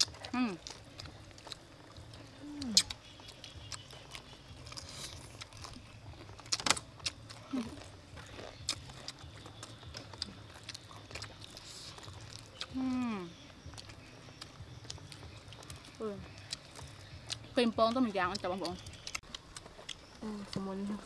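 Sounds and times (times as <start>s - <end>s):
crispy food crunching: 0.0s - 21.0s.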